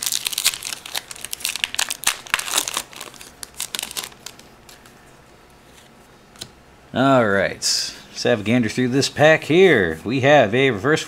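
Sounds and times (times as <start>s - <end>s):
foil wrapper crinkling: 0.0s - 4.9s.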